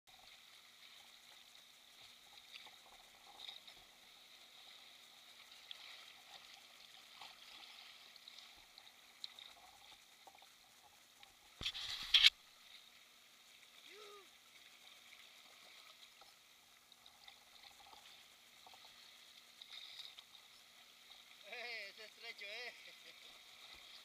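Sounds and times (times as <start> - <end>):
small ticks: 0.1 - 12.4
water sloshing against hull: 0.1 - 21.6.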